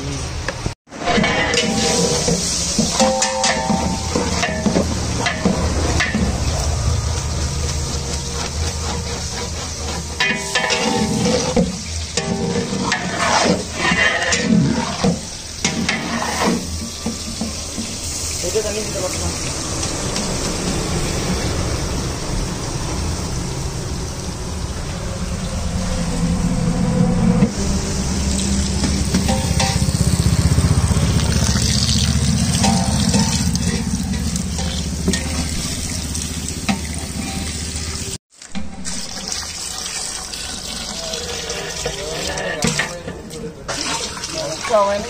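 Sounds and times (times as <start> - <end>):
water pouring into a pot: 29.3 - 45.0.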